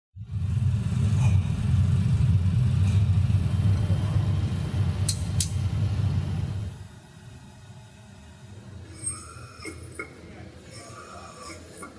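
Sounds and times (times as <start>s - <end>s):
workshop machinery rumbling: 0.2s - 6.8s.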